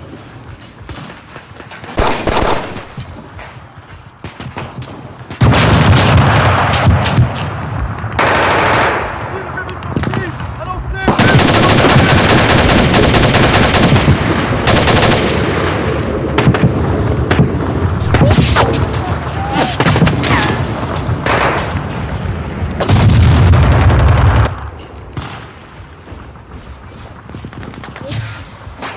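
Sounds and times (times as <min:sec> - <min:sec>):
automatic gunfire: 0:02.0 - 0:03.0, 0:08.2 - 0:09.1, 0:11.1 - 0:15.8.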